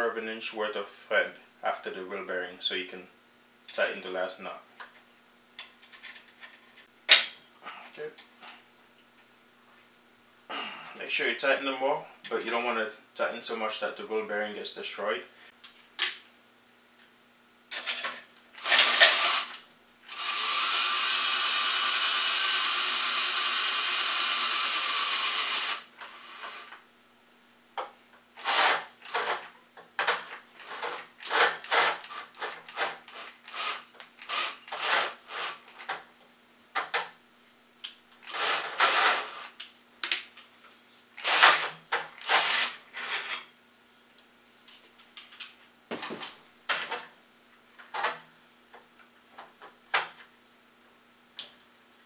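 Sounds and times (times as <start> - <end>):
cordless drill running: 18.6 - 26.8, 28.4 - 29.4, 30.2 - 35.9, 38.2 - 39.6, 41.2 - 42.8.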